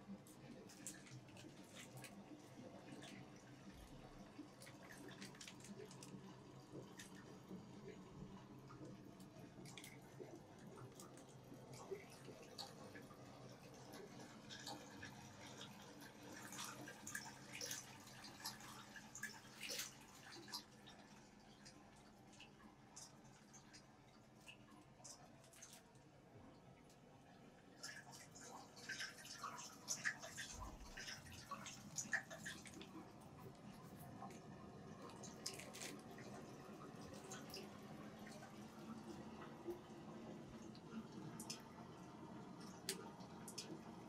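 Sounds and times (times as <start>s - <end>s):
low steady hum: 0.0s - 44.0s
water dripping: 27.7s - 43.9s.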